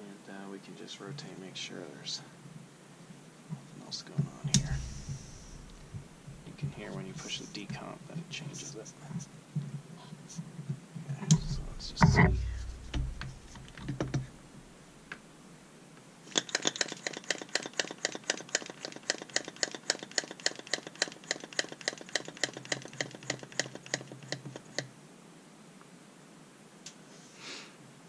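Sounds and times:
rapid mechanical clicking: 16.3s - 24.9s.

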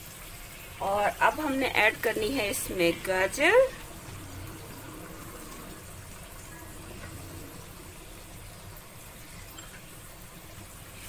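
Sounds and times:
food sizzling in a wok: 0.0s - 11.0s
low hum: 2.6s - 9.8s.

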